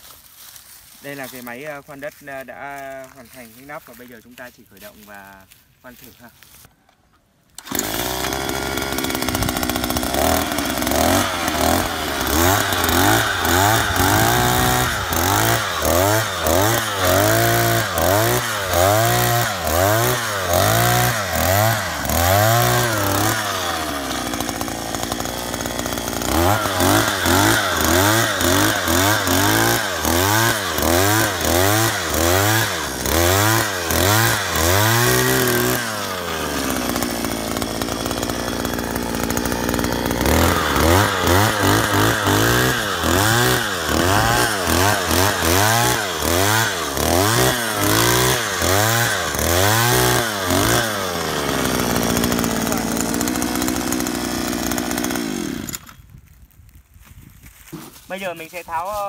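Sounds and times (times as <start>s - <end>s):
earth auger engine drilling: 7.5s - 56.3s.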